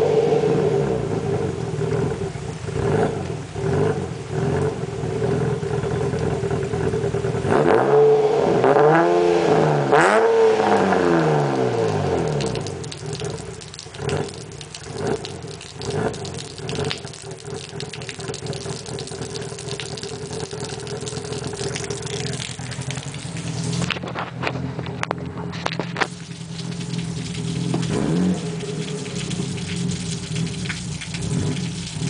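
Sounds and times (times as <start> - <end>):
car engine revving and idling: 0.0 - 32.0.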